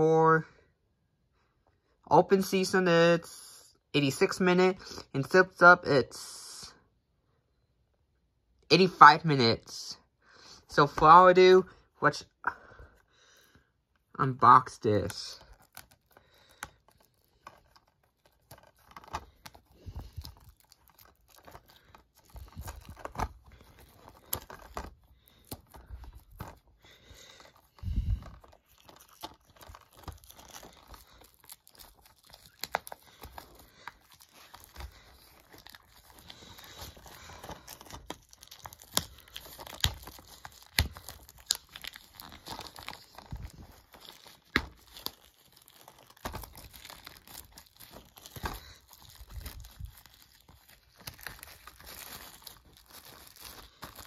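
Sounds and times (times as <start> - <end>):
plastic shrink wrap crinkling: 14.0 - 54.0.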